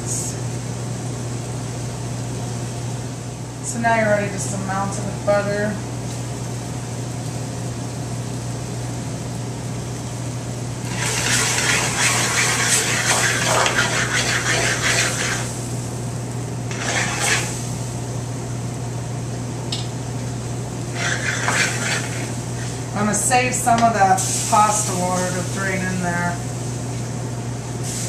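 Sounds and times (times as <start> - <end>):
steady low hum: 0.0 - 28.0
pan sizzling over burner: 6.1 - 18.8, 20.3 - 28.0.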